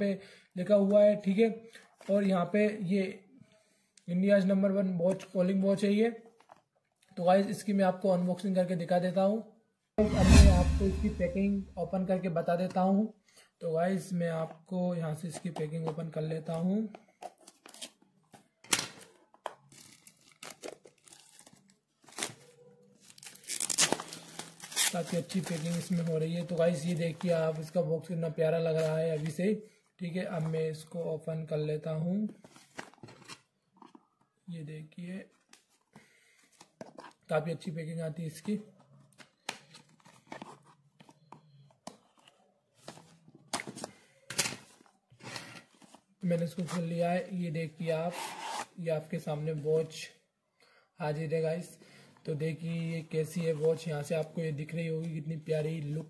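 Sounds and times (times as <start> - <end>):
card and plastic wrap rustling: 15.3 - 27.7, 32.3 - 34.4, 38.7 - 47.2
plastic wrap tearing and crinkling: 18.6 - 27.0.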